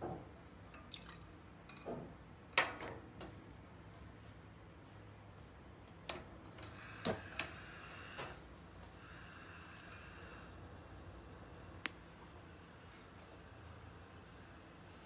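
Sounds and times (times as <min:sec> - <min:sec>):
soft gas hiss: 0:03.5 - 0:15.0.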